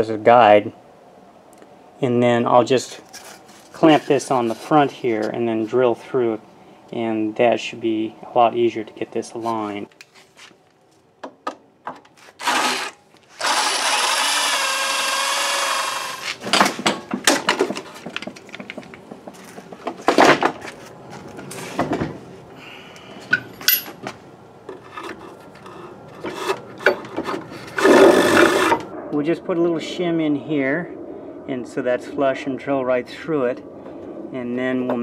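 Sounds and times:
electric drill boring wood: 0:12.4 - 0:16.4, 0:27.8 - 0:28.8
tools knocking and clicking: 0:26.2 - 0:27.4.

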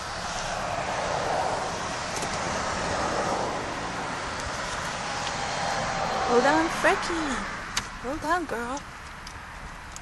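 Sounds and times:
car tyres and engine on road: 0:00.0 - 0:10.0.

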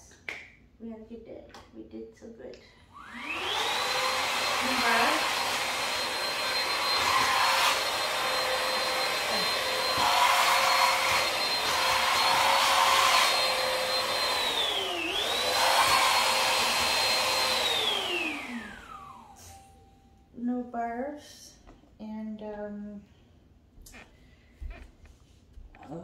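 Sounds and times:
handheld vacuum motor whine: 0:03.0 - 0:19.6.

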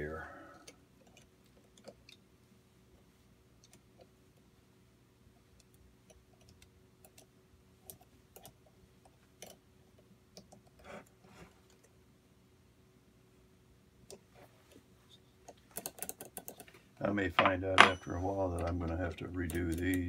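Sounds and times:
low steady hum: 0:00.0 - 0:20.0
clicks and taps of small parts: 0:15.5 - 0:16.7.

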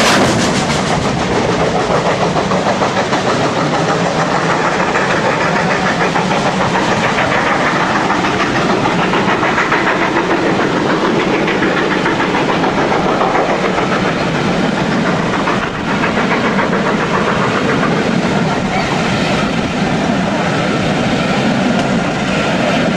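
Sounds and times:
coaches rolling over rails: 0:00.0 - 0:22.9
steam locomotive exhaust: 0:00.0 - 0:22.9.

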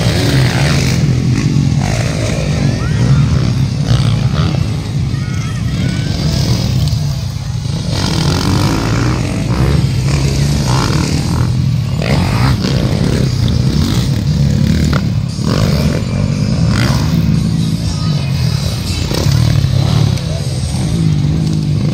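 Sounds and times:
motocross bike engines racing: 0:00.0 - 0:21.9.

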